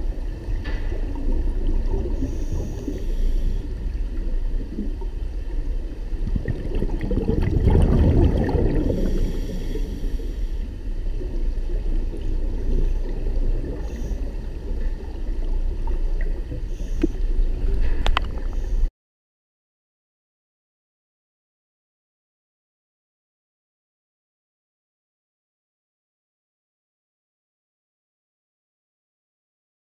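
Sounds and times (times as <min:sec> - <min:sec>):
underwater exhaled bubbles: 0:00.0 - 0:18.9.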